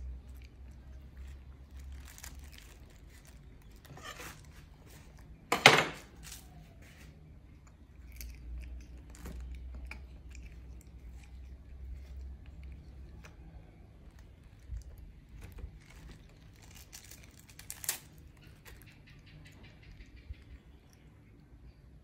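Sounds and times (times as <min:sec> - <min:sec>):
plastic bag crinkling: 0:00.0 - 0:05.1, 0:14.4 - 0:18.8.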